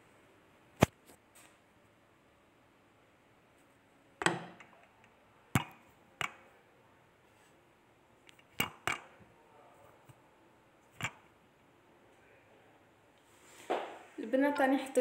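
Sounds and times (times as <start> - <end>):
phone handling knocks and clicks: 4.2 - 4.8.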